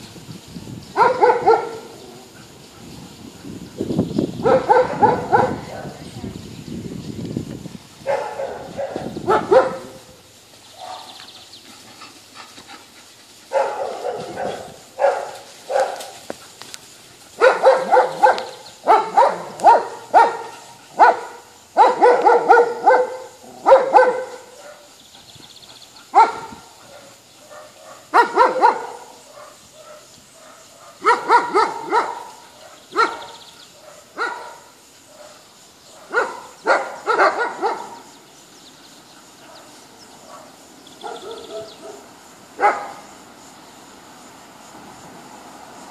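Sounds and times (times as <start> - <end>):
dogs barking: 1.0 - 2.6, 4.4 - 6.0, 8.0 - 10.2, 10.8 - 11.2, 13.5 - 16.4, 17.3 - 25.0, 25.6 - 38.1, 39.3 - 43.1.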